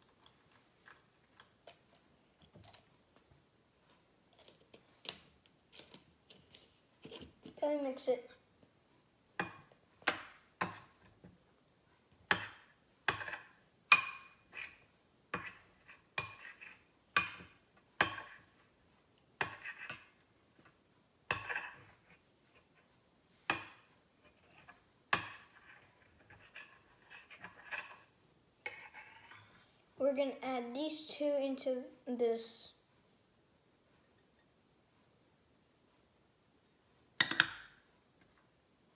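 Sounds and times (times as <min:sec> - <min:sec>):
metal spoon clinking on glass bowl: 0:13.9 - 0:14.5.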